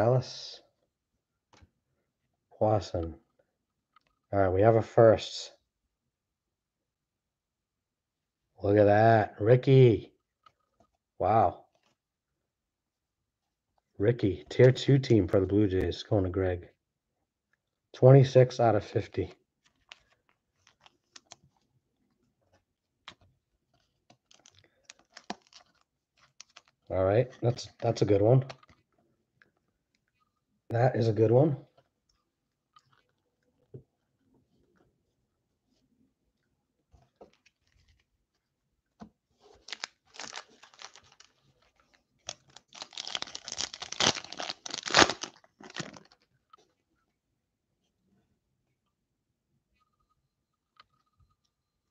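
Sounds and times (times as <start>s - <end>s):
plastic wrapper tearing and crinkling: 24.2s - 26.9s, 39.6s - 46.2s.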